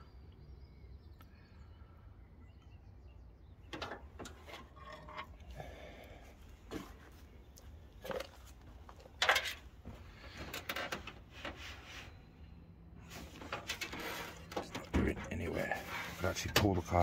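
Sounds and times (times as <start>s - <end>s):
light knocks and rubbing: 13.0s - 17.0s
hand brushing bare metal: 15.5s - 16.5s.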